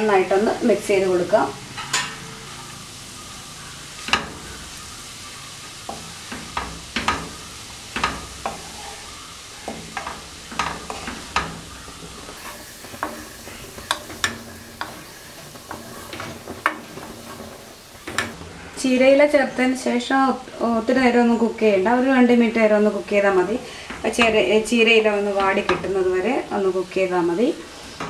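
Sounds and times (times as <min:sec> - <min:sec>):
faint sizzle: 0:00.0 - 0:28.0
wooden spatula scraping a pan: 0:05.8 - 0:18.4
spatula knocking against pan: 0:12.4 - 0:18.4.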